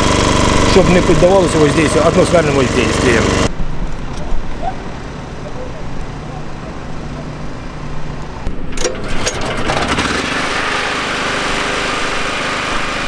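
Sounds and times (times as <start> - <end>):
small motor running: 0.0 - 3.5.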